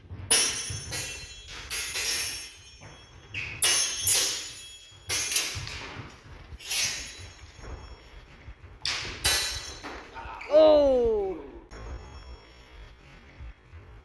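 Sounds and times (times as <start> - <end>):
swords clashing: 0.3 - 6.0, 6.6 - 7.4, 8.8 - 10.5.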